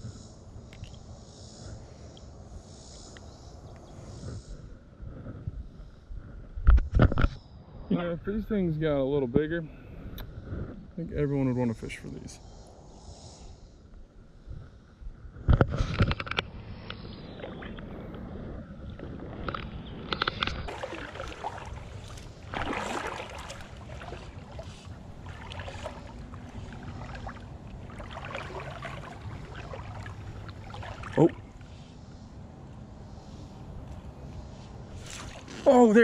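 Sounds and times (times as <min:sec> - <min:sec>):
water moving against hull: 0:17.1 - 0:32.2, 0:34.9 - 0:35.9
fly line rustling: 0:20.2 - 0:31.8
knocks and splashing: 0:20.5 - 0:31.4.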